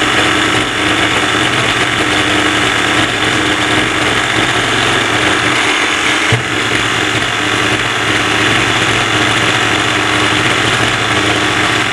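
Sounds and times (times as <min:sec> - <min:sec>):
model engine idling: 0:00.0 - 0:11.9
short knock: 0:06.3 - 0:06.6.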